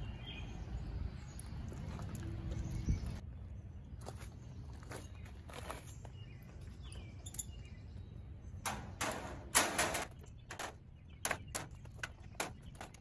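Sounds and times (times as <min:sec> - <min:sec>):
metal clicks and clanks: 0:08.6 - 0:13.0
metal clamps scraping and rattling: 0:08.7 - 0:13.0.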